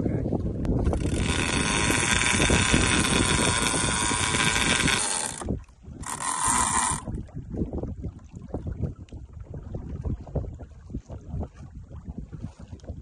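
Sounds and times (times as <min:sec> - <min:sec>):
fishing reel spool buzzing: 0:00.8 - 0:07.1.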